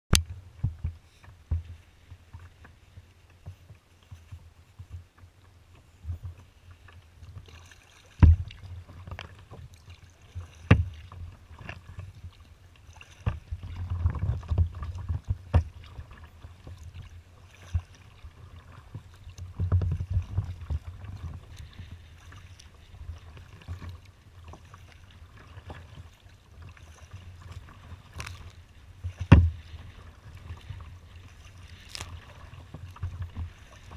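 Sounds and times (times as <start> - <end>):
water slapping against kayak hull: 0.1 - 33.9
wind rumbling on microphone: 13.0 - 33.9.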